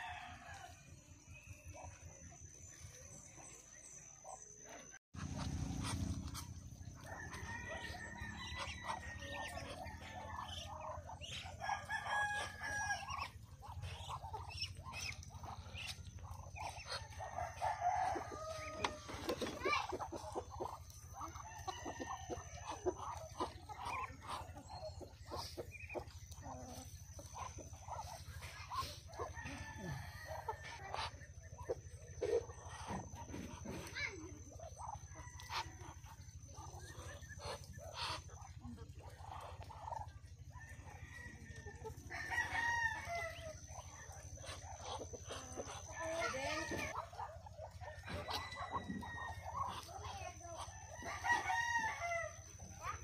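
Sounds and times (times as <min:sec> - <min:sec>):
rooster crowing: 0:00.0 - 0:00.8, 0:07.0 - 0:10.5, 0:11.6 - 0:13.3, 0:16.9 - 0:19.1, 0:29.2 - 0:30.9, 0:40.6 - 0:43.6, 0:48.0 - 0:49.7, 0:50.9 - 0:52.4
chickens clucking and squawking: 0:00.0 - 0:53.0
steady low hum: 0:00.6 - 0:51.1.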